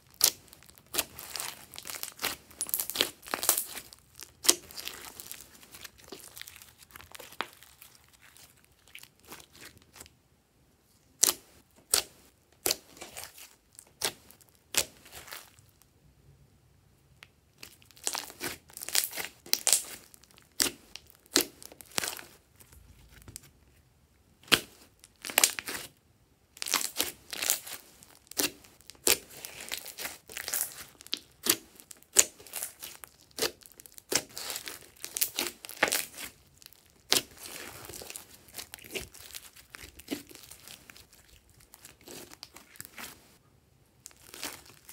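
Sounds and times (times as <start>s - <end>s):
slime squishing and popping: 0.1s - 10.0s, 17.6s - 22.2s, 26.6s - 43.1s.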